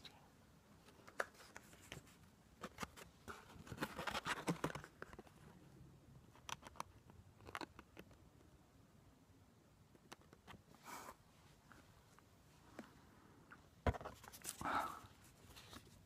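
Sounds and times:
rustling: 10.2s - 16.0s.

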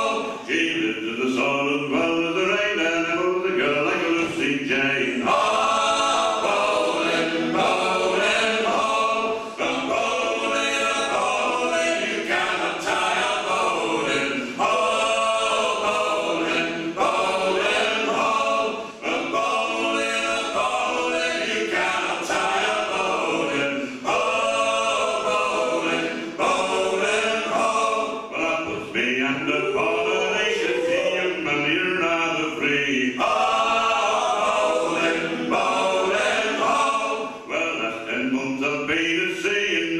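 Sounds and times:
men singing in harmony: 0.0s - 39.9s
singers breathing: 9.3s - 9.6s.

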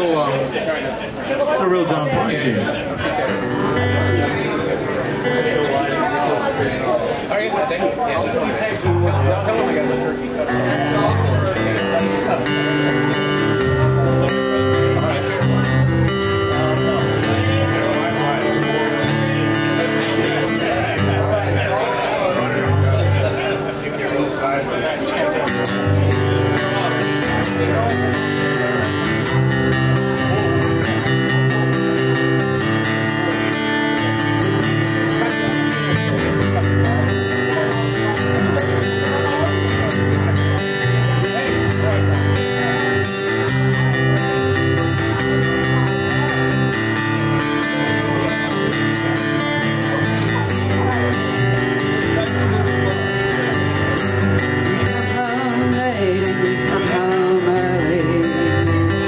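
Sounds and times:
acoustic guitar strumming: 0.0s - 59.0s
person singing: 54.8s - 59.0s.

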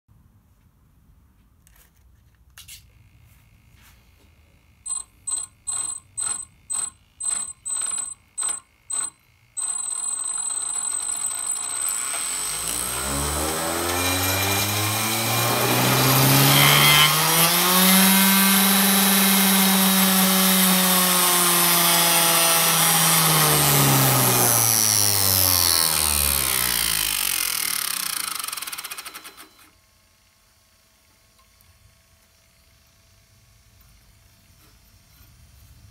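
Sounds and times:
short electronic beeps: 4.8s - 9.9s.

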